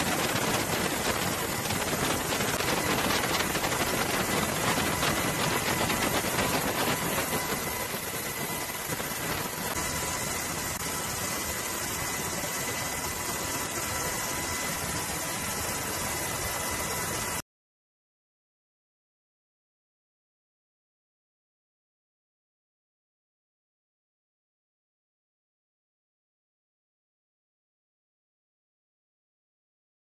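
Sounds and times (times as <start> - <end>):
aircraft engine with high whine: 0.0 - 17.5.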